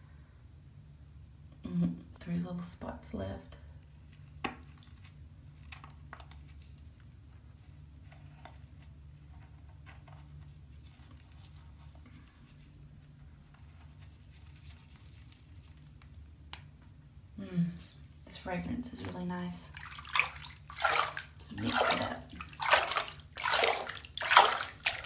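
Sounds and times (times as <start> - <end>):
hand sloshing bath water: 17.8 - 25.0
soft water splashes: 19.0 - 25.0.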